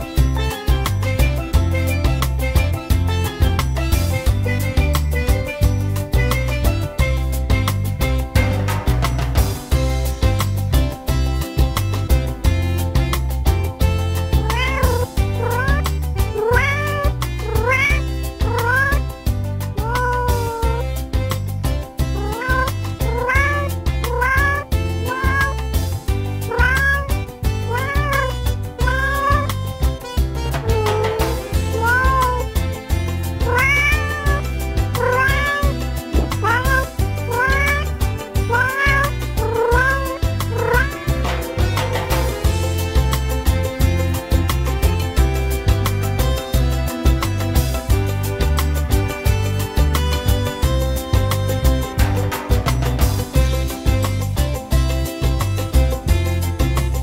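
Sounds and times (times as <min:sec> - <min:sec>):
music with heavy bass beat: 0:00.0 - 0:57.0
cat meowing: 0:14.3 - 0:19.1, 0:19.8 - 0:21.0, 0:22.1 - 0:25.8, 0:26.4 - 0:29.6, 0:30.6 - 0:32.8, 0:33.4 - 0:41.5.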